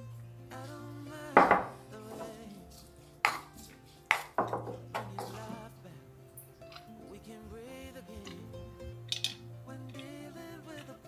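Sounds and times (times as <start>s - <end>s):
soft background music: 0.0s - 11.0s
kitchen utensils knocking and clinking: 1.4s - 2.3s, 4.1s - 5.5s.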